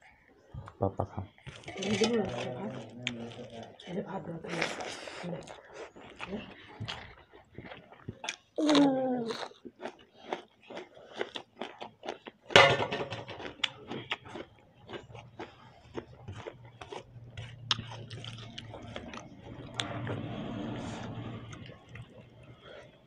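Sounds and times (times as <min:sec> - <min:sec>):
chewing: 0:00.0 - 0:23.0
steel plate clattering on table: 0:12.6 - 0:13.3.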